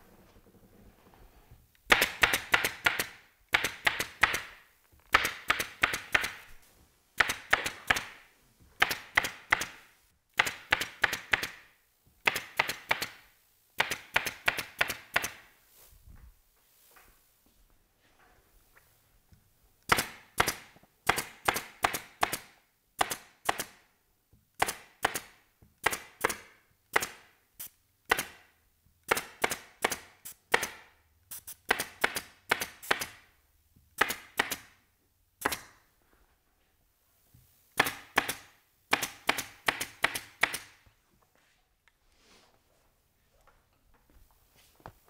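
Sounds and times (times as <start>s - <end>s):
pneumatic staple gun firing: 1.9s - 4.5s.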